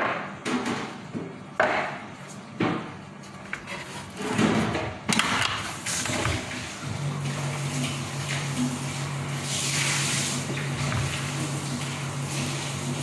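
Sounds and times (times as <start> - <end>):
kitchen items knocking and clattering: 0.0 - 6.7.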